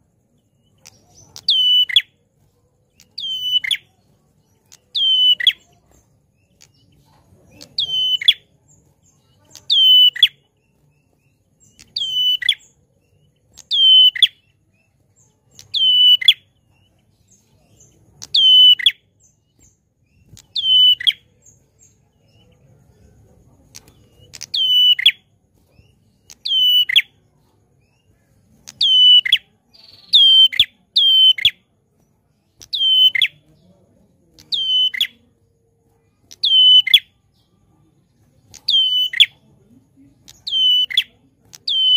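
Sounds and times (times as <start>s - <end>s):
bird giving sharp downward calls: 1.4s - 2.1s, 3.0s - 3.9s, 4.9s - 5.7s, 7.6s - 8.5s, 9.6s - 10.4s, 11.8s - 12.7s, 13.6s - 14.4s, 15.6s - 16.4s, 18.2s - 19.0s, 20.3s - 21.2s, 24.3s - 25.2s, 26.3s - 27.1s, 28.7s - 31.6s, 32.6s - 33.4s, 36.3s - 37.1s, 40.3s - 41.9s.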